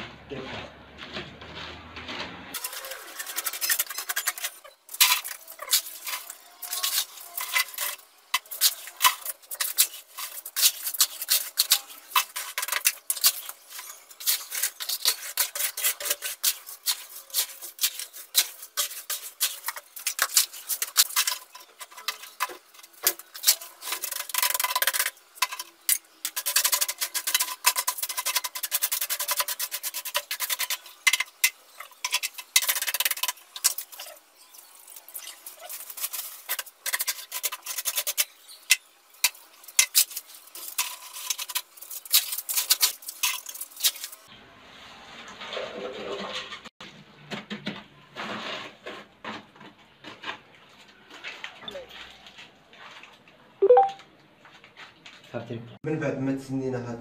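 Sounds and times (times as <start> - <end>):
scoop scraping wet mortar: 2.5 - 34.2.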